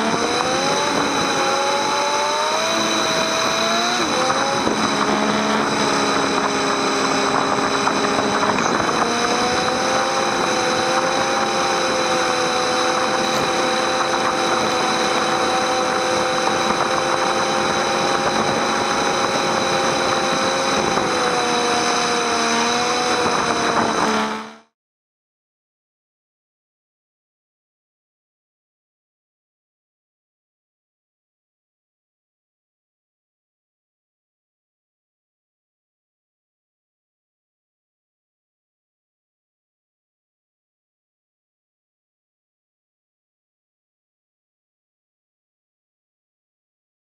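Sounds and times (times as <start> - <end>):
wind and wet road noise: 0.0 - 24.6
motorcycle engine accelerating: 0.0 - 24.8.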